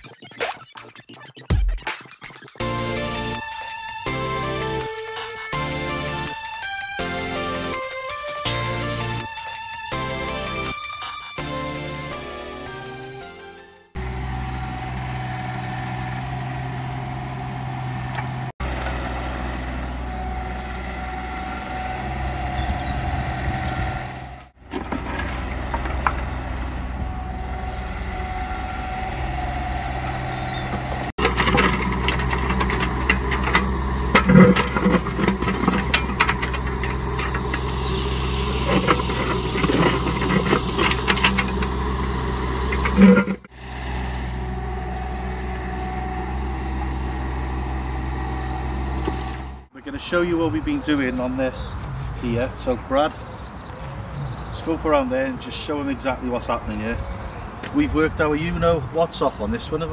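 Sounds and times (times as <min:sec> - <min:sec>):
hydraulic whine: 0:02.6 - 0:49.7
diesel engines running: 0:02.6 - 0:59.9
bucket clanking on soil and stones: 0:24.6 - 0:26.4, 0:30.7 - 0:43.5.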